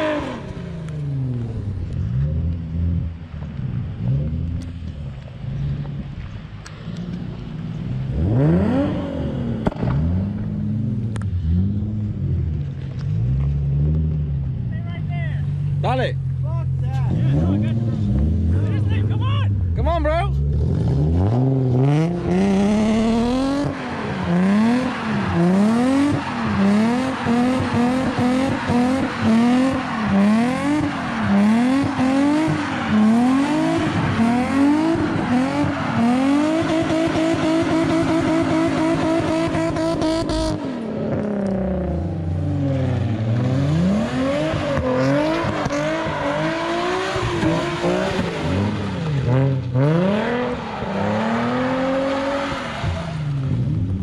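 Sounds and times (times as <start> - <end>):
car engine revving hard: 0.0 - 3.2, 7.3 - 12.4, 17.0 - 19.7, 20.4 - 54.0.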